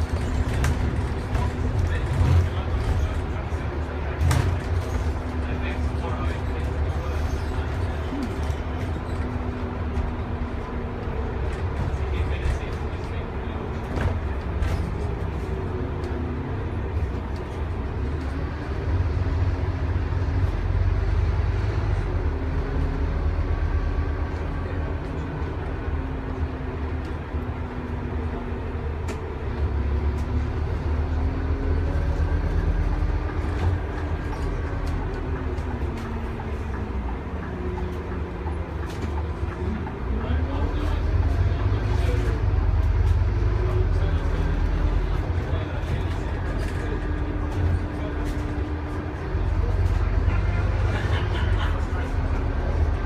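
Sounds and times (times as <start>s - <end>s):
bus diesel engine droning: 0.0s - 53.0s.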